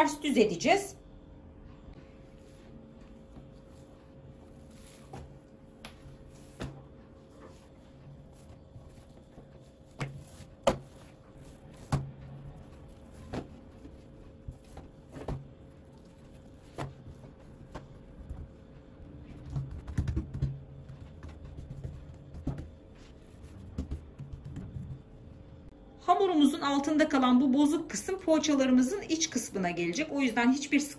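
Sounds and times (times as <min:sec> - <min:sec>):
hands slapping dough on wood: 0:05.0 - 0:06.9, 0:09.0 - 0:12.2, 0:19.4 - 0:25.1.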